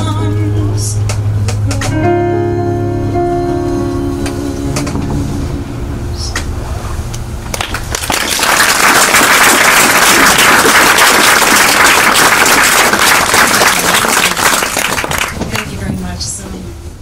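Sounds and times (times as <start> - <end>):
audience applauding: 7.5 - 15.8.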